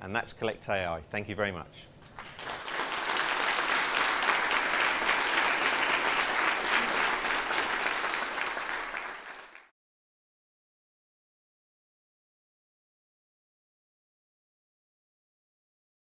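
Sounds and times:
audience applauding: 2.0s - 9.7s.

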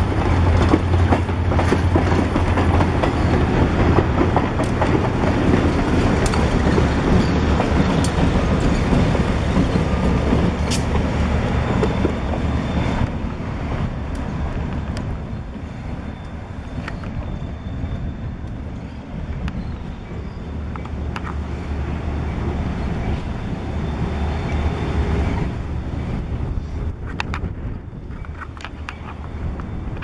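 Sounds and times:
train wheels clicking over rail joints: 0.0s - 21.7s
diesel locomotive engine passing: 0.0s - 30.0s.

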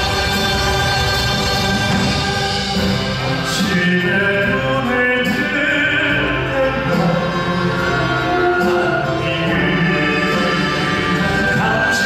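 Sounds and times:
traditional orchestra playing: 0.0s - 12.0s
men singing: 3.4s - 12.0s.

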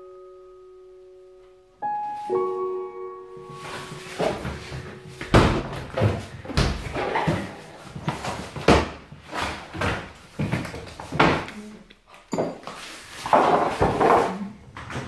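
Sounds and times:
items clattering: 3.5s - 11.6s, 12.3s - 15.0s
cupboard doors and drawers shutting: 3.7s - 10.0s.

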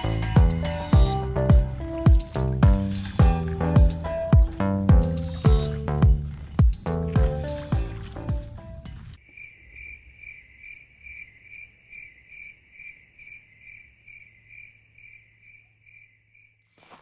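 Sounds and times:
cricket chirping: 0.0s - 8.0s, 9.2s - 17.0s.

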